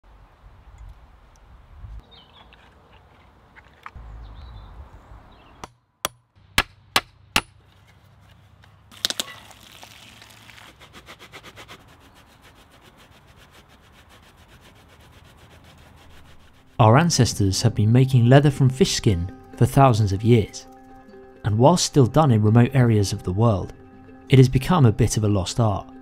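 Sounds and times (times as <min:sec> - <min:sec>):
hammer striking wooden frame: 0:05.6 - 0:07.6
blade scraping wooden stick: 0:10.6 - 0:16.8.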